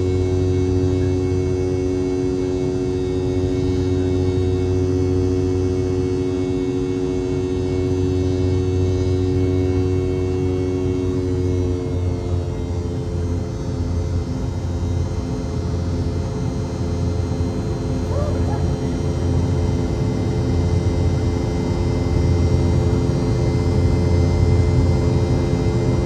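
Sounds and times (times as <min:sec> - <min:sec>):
jet engine hum in cabin: 0:00.0 - 0:26.0.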